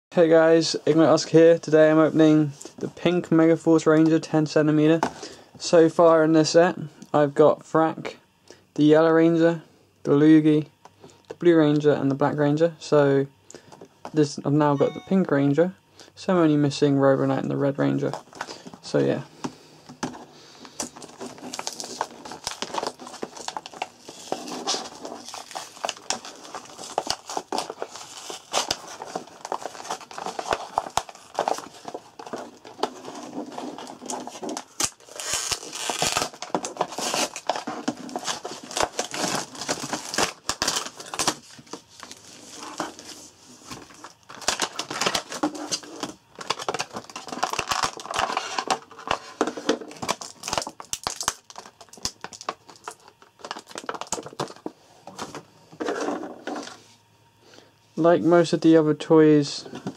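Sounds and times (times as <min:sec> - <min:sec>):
plastic packaging crinkling: 0:20.6 - 0:54.7.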